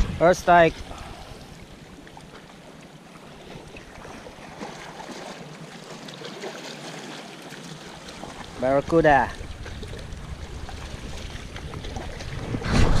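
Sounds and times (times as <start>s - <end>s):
wind on microphone: 0.0s - 1.6s, 8.2s - 13.0s
sea water washing against rocks: 0.6s - 13.0s.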